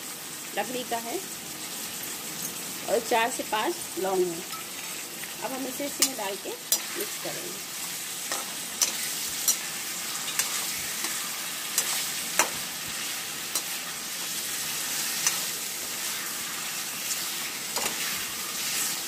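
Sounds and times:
chicken sizzling in hot oil: 0:00.0 - 0:19.0
metal spatula scraping a pan: 0:05.9 - 0:19.0.

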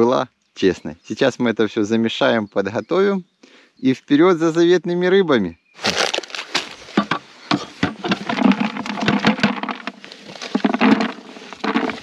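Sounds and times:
crunchy rustles and scrapes: 0:05.8 - 0:12.0.

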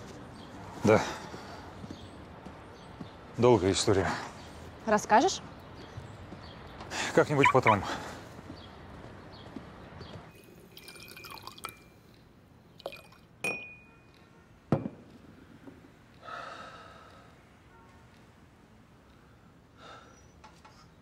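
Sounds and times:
liquid pouring into glass: 0:10.6 - 0:11.9, 0:12.8 - 0:13.3
glass clinks: 0:12.9 - 0:14.1.

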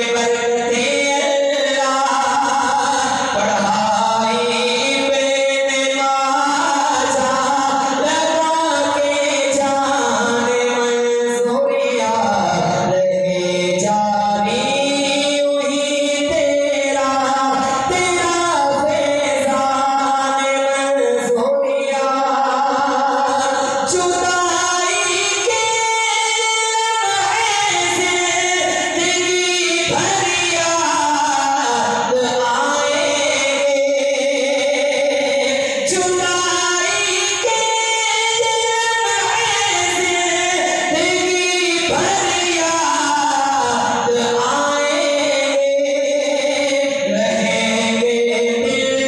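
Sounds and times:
man singing unaccompanied: 0:00.0 - 0:49.0
singer breathing: 0:17.6 - 0:17.9, 0:23.4 - 0:23.9, 0:35.5 - 0:35.9.

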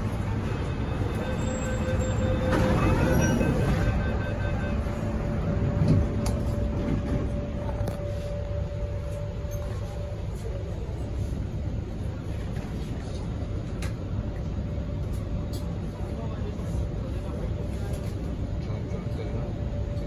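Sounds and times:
train electrical hum and rumble: 0:00.0 - 0:20.0
train doors sliding shut: 0:01.1 - 0:08.4.

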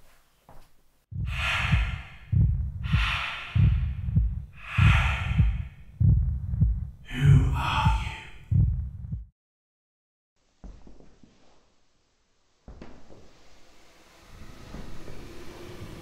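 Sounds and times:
deep pulsing throb: 0:01.1 - 0:09.3
person breathing heavily: 0:01.2 - 0:06.3, 0:07.0 - 0:08.8.

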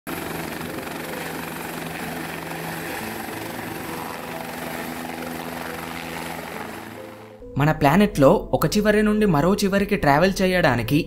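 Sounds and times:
helicopter rotor and engine: 0:00.1 - 0:07.4.

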